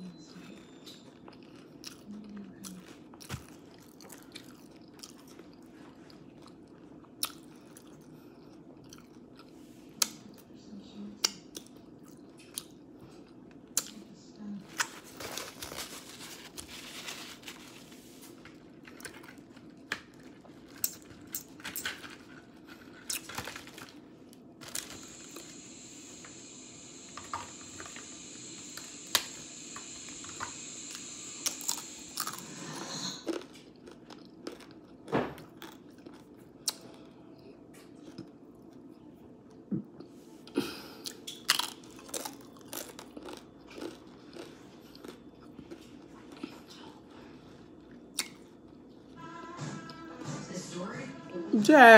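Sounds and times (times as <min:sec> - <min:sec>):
crunchy taco chewing: 0:00.7 - 0:10.1, 0:14.7 - 0:28.0, 0:28.7 - 0:37.2, 0:40.9 - 0:49.2.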